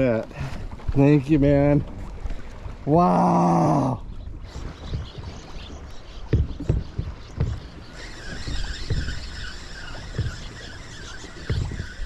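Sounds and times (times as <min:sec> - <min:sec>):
water slapping against boat hull: 0:04.0 - 0:12.0.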